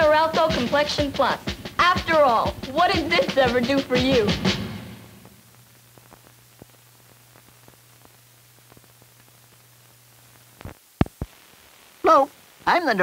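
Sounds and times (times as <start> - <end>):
film hiss: 0.0 - 13.0
faint crackles and clicks: 5.2 - 13.0.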